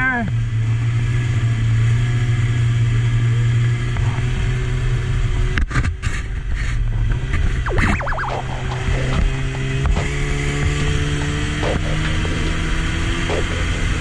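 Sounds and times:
snowmobile engine running: 7.9 - 14.0.

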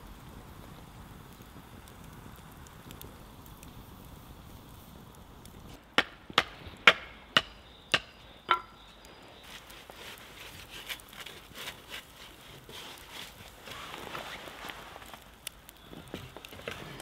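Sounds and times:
light clicks and scrapes: 9.4 - 17.0.

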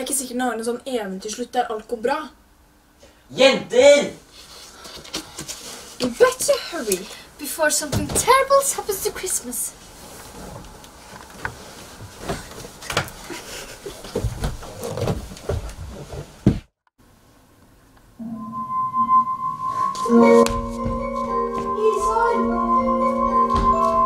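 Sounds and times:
rustling bedding: 8.9 - 16.6
music with held notes: 18.2 - 24.0.

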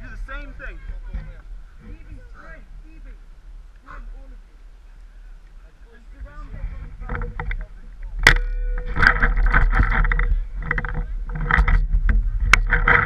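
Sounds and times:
camera handling rumble: 6.8 - 13.0
sharp cracks: 7.1 - 13.0.

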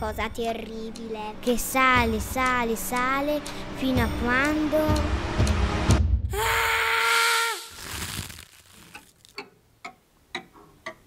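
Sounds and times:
soft clock-like ticks: 0.0 - 5.6, 9.0 - 11.0.

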